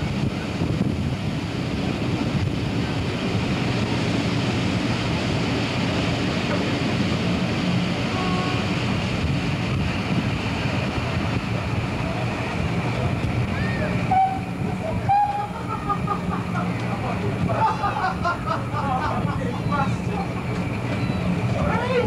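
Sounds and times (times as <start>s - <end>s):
wind noise on microphone: 0.0s - 15.4s
train rumbling: 0.0s - 22.0s.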